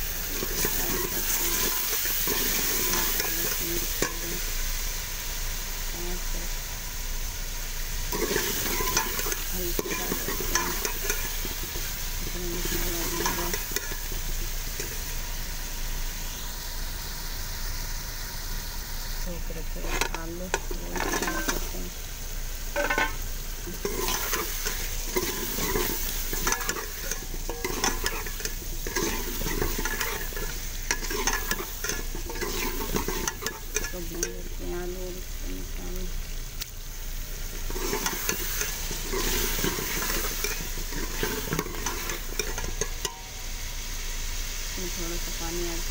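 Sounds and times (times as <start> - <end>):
frying sizzle: 0.0 - 45.9
metal ladle scraping a metal pot: 8.1 - 11.9, 19.8 - 21.8, 22.8 - 34.4, 37.5 - 43.3.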